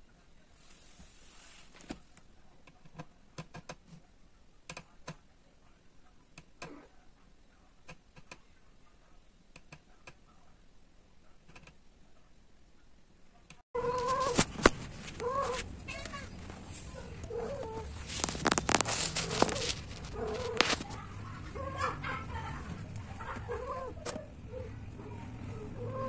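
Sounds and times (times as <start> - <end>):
soft hiss: 0.0 - 2.5.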